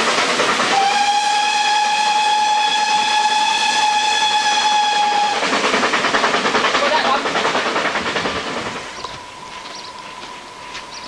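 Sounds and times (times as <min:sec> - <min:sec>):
steam locomotive whistle: 0:00.6 - 0:05.5.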